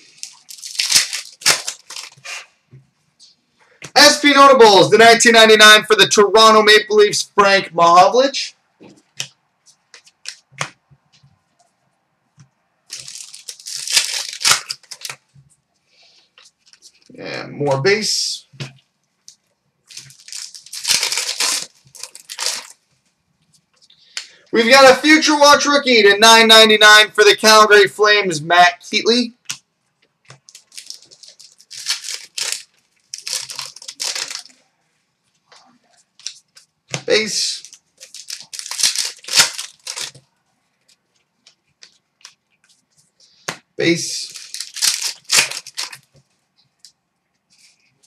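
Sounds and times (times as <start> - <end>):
foil wrapper tearing and crinkling: 0.0 - 2.3, 12.9 - 15.2, 19.9 - 22.8, 30.4 - 34.6, 37.6 - 40.2, 44.2 - 46.2.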